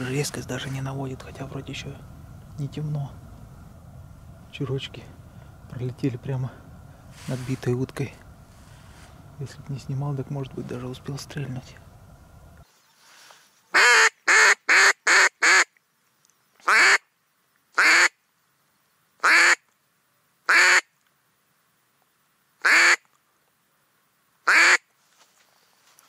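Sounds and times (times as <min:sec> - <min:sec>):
duck call quacks: 0:13.8 - 0:15.7, 0:16.7 - 0:17.0, 0:17.8 - 0:18.1, 0:19.2 - 0:19.6, 0:20.5 - 0:20.9, 0:22.6 - 0:23.0, 0:24.5 - 0:24.8.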